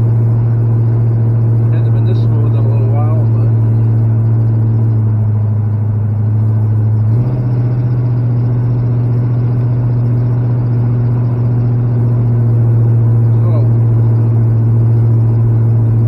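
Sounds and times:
truck engine drone from cab: 0.0 - 16.0.

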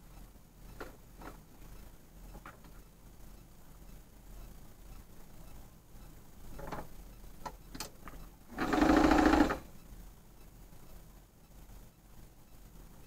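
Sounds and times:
electric sewing machine running: 8.5 - 9.7.

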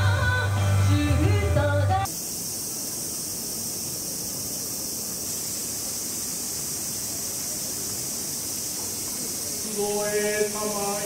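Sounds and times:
high-pitched hiss: 0.0 - 11.0.

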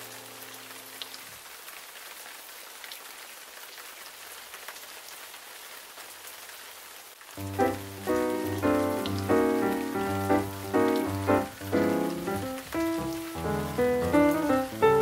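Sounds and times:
steady rain: 0.0 - 15.0
held musical chord: 7.4 - 15.0.

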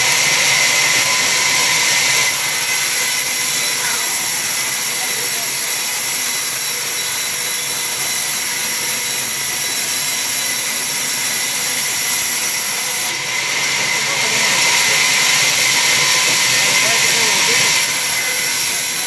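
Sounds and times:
band saw cutting timber: 0.0 - 19.0.

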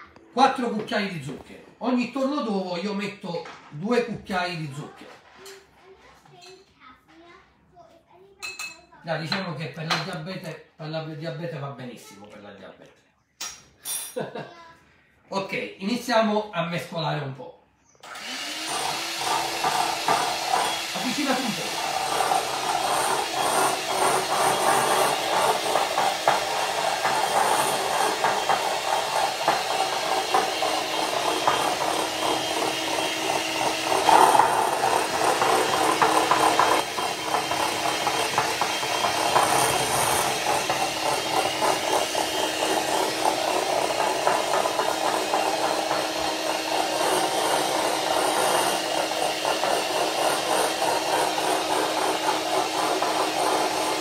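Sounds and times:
electric hand mixer running: 18.0 - 54.0.

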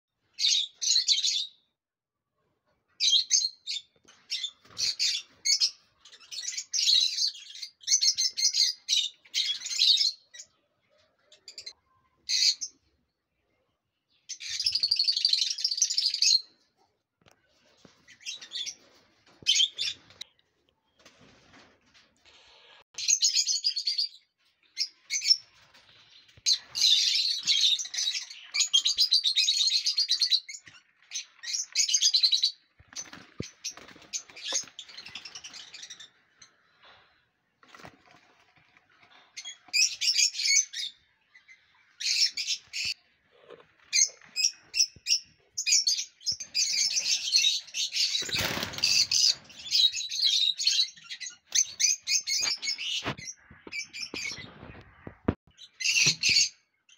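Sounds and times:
lovebirds chirping: 23.0 - 37.9, 38.8 - 56.9.

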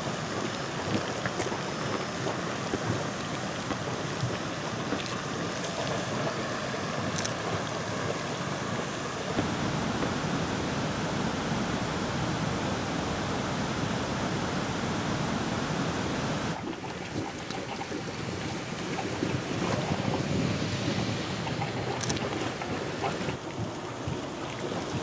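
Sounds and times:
steam venting hiss: 0.0 - 16.6.

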